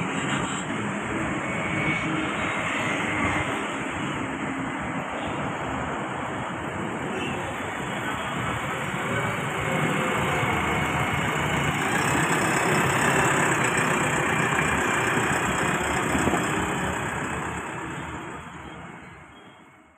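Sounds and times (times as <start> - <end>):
backhoe diesel engine running: 7.8 - 19.0.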